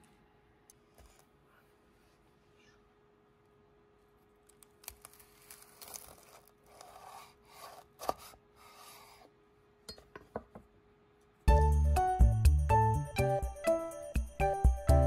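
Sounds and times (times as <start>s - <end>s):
knife crunching fried wrapper: 4.4s - 8.2s.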